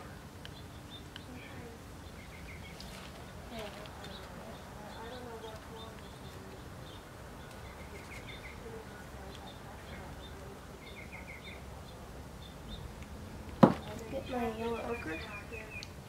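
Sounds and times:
outdoor background hum: 0.0 - 16.0
small birds chirping: 0.0 - 16.0
bird trills: 4.1 - 12.9.

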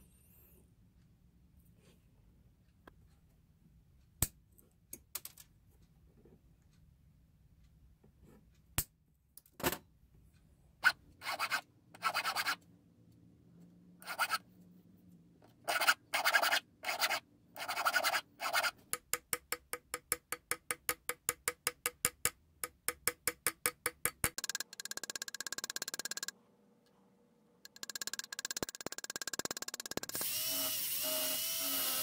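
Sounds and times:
needle file rasping on metal: 10.8 - 12.6, 14.0 - 14.4, 15.6 - 18.8
small hammer tapping metal: 18.9 - 26.3, 27.7 - 30.2.

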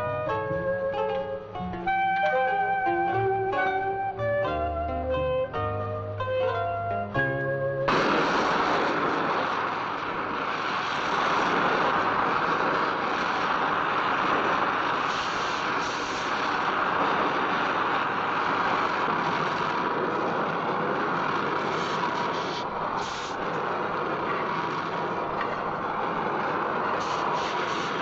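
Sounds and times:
music: 0.0 - 8.0
vehicle rushing noise: 0.0 - 28.0.

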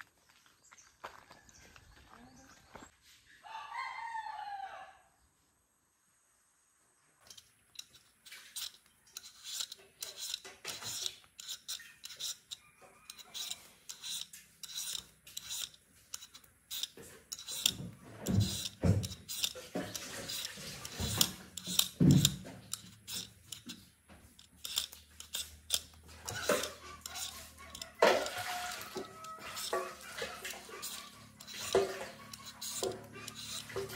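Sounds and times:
scraping and cutting strokes: 7.2 - 33.9.

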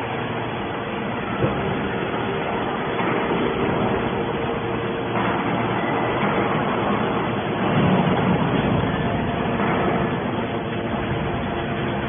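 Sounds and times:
scrap baler drone: 0.0 - 12.0.

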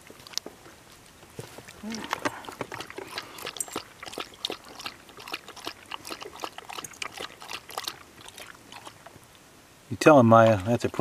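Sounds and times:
dog lapping water: 1.5 - 9.3, 10.2 - 11.0.

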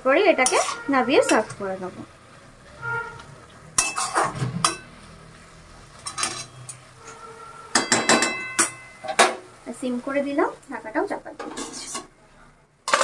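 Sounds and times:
metal spatula scraping metal pan: 0.3 - 1.6, 3.8 - 4.8, 11.4 - 12.1.

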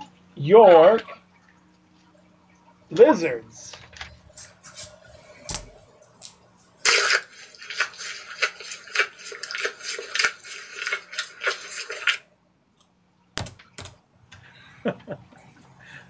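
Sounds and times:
chewing: 6.1 - 12.3.

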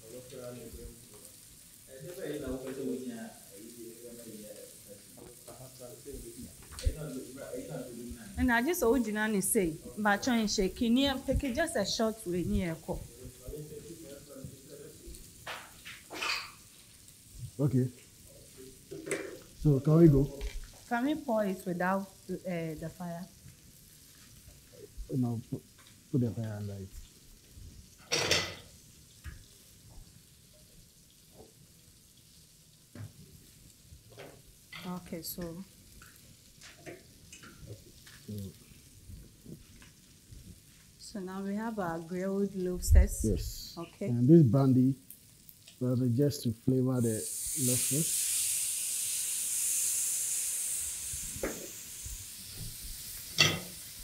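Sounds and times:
loud hiss of frying: 0.0 - 43.8, 44.6 - 54.0
faint sizzling with crackles: 0.0 - 54.0
heavy pan clunk on burner: 28.0 - 28.7, 53.4 - 53.7.

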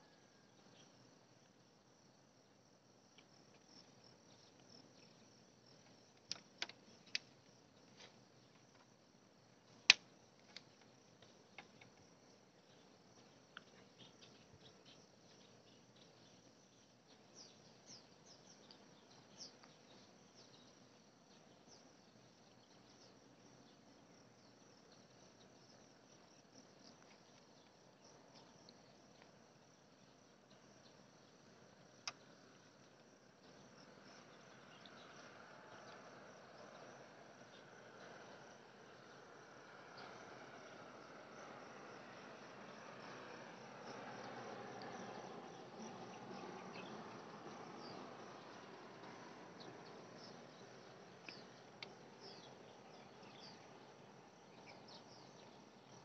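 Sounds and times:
insects chirping: 0.0 - 56.0.

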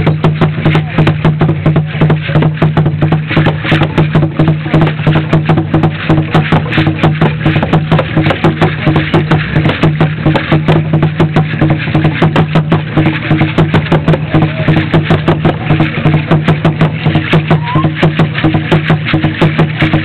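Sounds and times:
fast drumming: 0.0 - 20.0
shakers rattling: 0.0 - 20.0.

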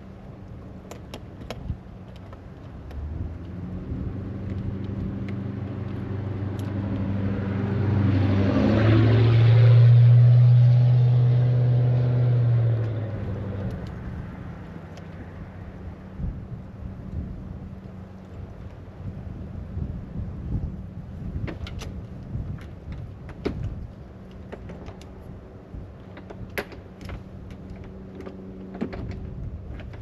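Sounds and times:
vehicle driving past: 3.0 - 16.2.

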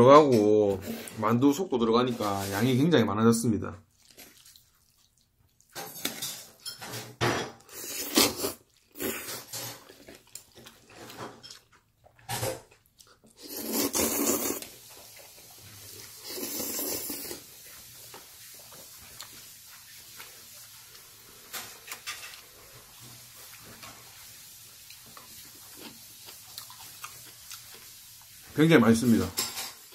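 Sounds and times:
slurping noodles: 7.7 - 11.2, 13.3 - 20.6.

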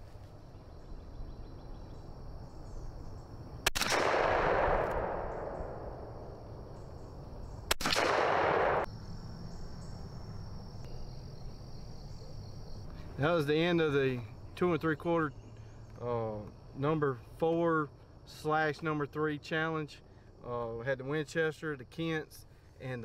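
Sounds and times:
shotgun shots with echo: 3.7 - 6.1, 7.7 - 8.9.

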